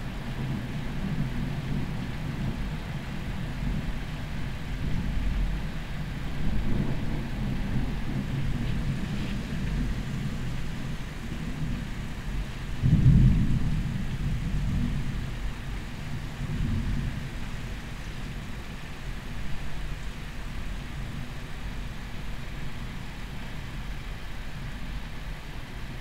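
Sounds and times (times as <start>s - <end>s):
distant thunder rumbling: 0.3s - 17.6s.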